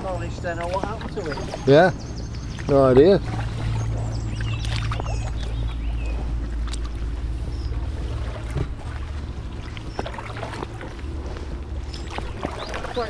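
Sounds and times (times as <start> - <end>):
paddle strokes: 0.0 - 13.0
steady low rumble: 0.0 - 13.0
water washing along kayak hull: 0.0 - 13.0
faint bird chirps: 3.6 - 6.3.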